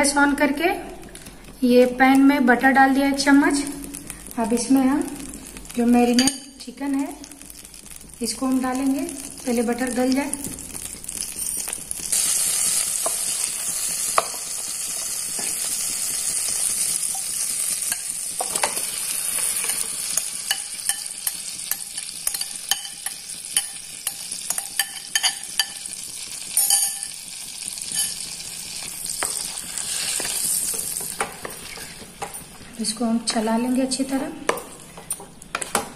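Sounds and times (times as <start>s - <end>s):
butter sizzling in a pan: 1.0s - 34.3s.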